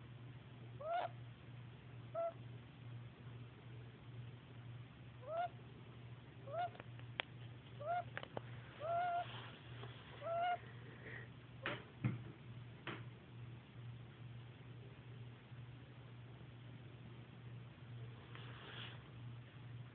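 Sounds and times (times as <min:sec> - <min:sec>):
low steady hum: 0:00.0 - 0:19.9
young woodpecker calling: 0:00.8 - 0:01.2, 0:02.1 - 0:02.4, 0:05.2 - 0:05.6, 0:06.4 - 0:06.8, 0:07.8 - 0:08.2, 0:08.8 - 0:09.3, 0:10.2 - 0:10.6.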